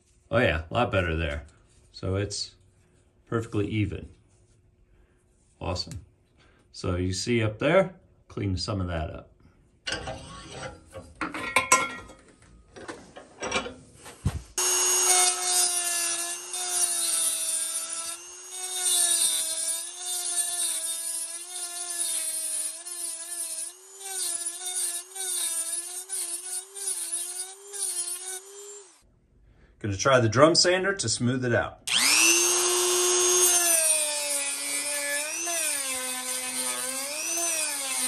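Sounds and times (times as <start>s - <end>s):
rotary tool grinding metal: 9.9s - 11.0s, 14.6s - 29.0s, 31.9s - 38.0s.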